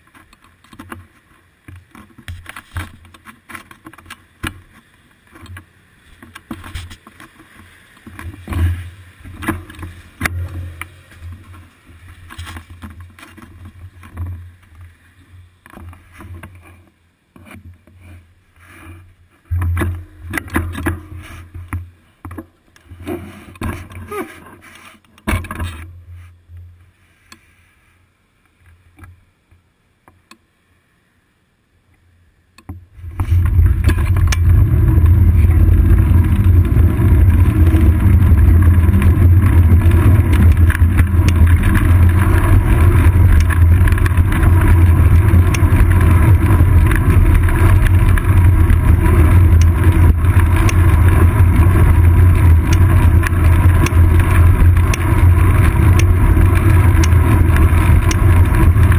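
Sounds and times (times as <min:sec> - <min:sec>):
wind and road rumble: 0:00.0 - 0:16.7, 0:32.7 - 0:58.9.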